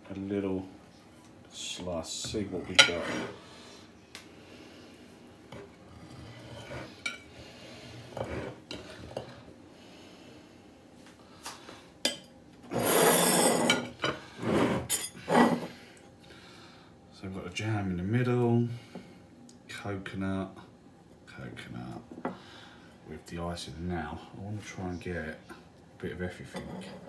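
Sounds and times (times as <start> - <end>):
knife scraping ceramic plate: 2.7 - 3.4, 6.1 - 7.2, 8.1 - 8.8.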